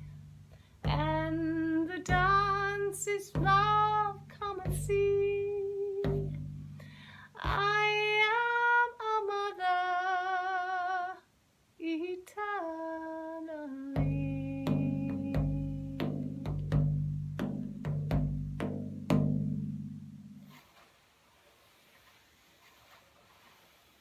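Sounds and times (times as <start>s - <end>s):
frame drum: 0.0s - 8.3s, 14.0s - 20.8s.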